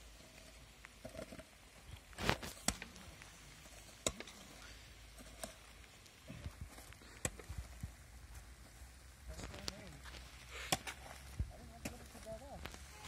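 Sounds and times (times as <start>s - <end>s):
shovels scraping in wet gravel: 2.1s - 5.7s.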